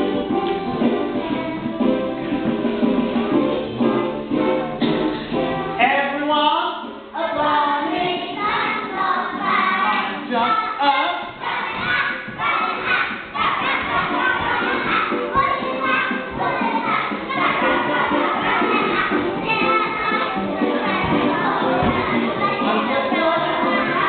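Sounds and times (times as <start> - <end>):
children singing: 7.2 - 24.0
soft thuds: 20.8 - 22.5.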